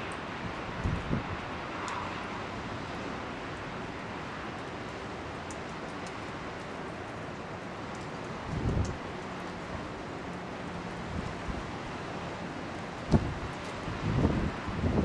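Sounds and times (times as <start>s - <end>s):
wind blowing: 0.0s - 3.1s, 8.3s - 15.0s
faint ticks: 1.8s - 2.0s, 5.4s - 6.8s, 7.9s - 9.6s.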